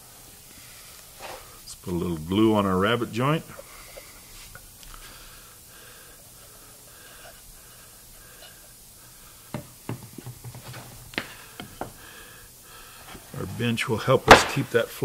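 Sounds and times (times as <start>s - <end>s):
knocks on workbench: 9.5s - 12.0s.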